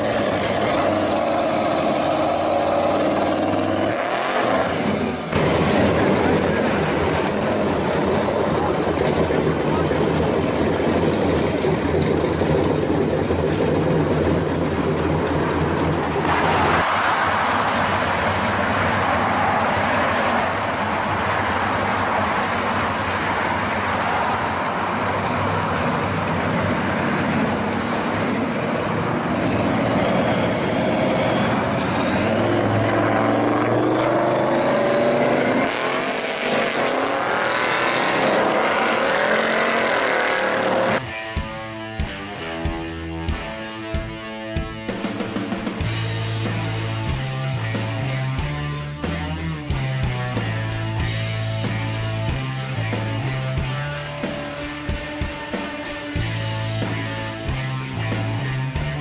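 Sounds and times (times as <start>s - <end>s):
car passing and accelerating: 0.0s - 41.1s.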